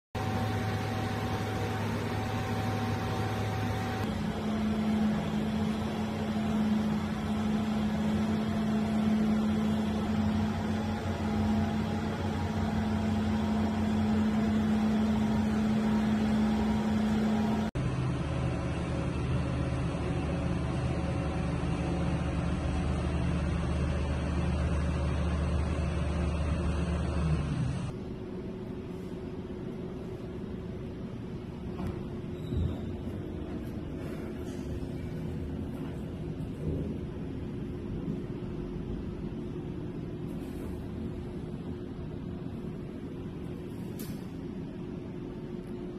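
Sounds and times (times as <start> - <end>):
electric motors humming: 0.2 - 28.0.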